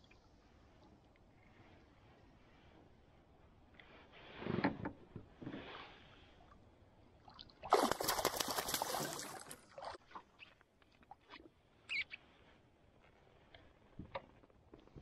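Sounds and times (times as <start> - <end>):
fish thrashing and splashing: 7.6 - 10.0.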